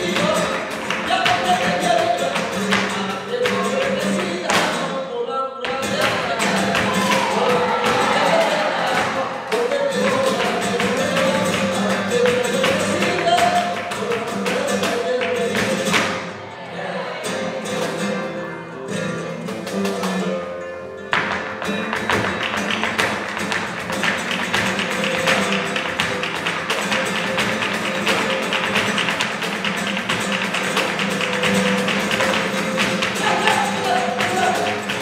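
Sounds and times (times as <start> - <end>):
cajon: 0.0 - 16.3, 18.9 - 35.0
acoustic guitar: 0.0 - 35.0
hand-claps: 6.0 - 16.2, 21.1 - 35.0.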